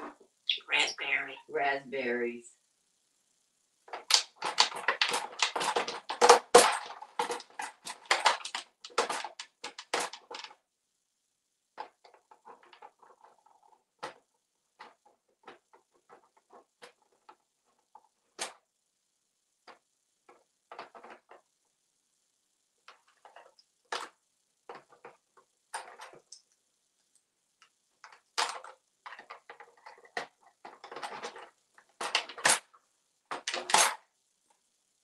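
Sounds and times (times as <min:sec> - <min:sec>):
parrot beak crackling and clattering: 0:03.9 - 0:10.6.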